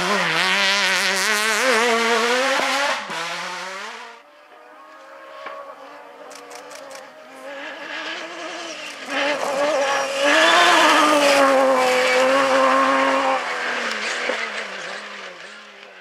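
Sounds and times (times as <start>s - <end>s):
buggy engine running hard: 0.0s - 16.0s
sharp clicks: 6.3s - 7.1s.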